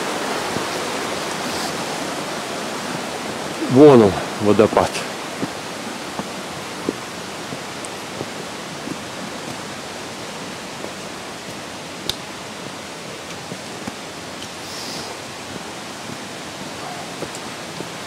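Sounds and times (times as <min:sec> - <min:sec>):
waterfall rushing: 0:00.0 - 0:18.0
footsteps on stony path: 0:05.0 - 0:18.0.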